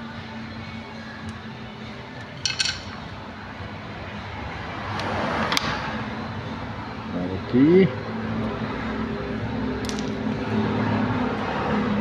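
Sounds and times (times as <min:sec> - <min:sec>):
small tools clinking: 0:02.4 - 0:03.0.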